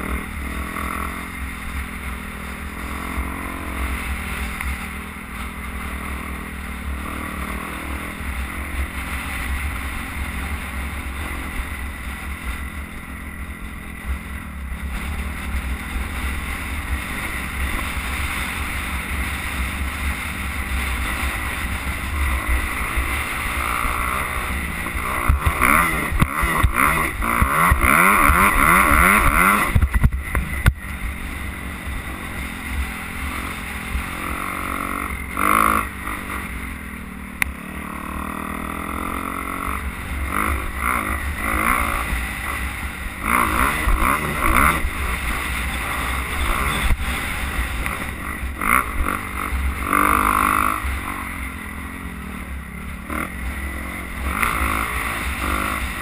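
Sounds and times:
dirt bike engine revving: 0.0 - 56.0
wind rumbling on microphone: 7.8 - 37.5.

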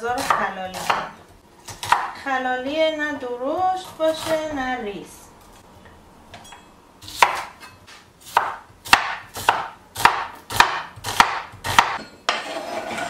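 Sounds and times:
knife slicing onion: 0.0 - 2.2, 7.0 - 13.0.

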